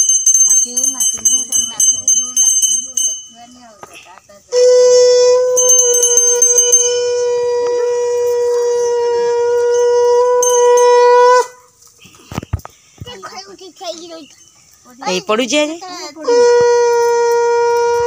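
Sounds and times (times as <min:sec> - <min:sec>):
small hand bell ringing: 0:00.0 - 0:04.1, 0:05.5 - 0:07.4, 0:09.7 - 0:11.2
conch shell blast: 0:04.5 - 0:11.7, 0:16.2 - 0:18.0.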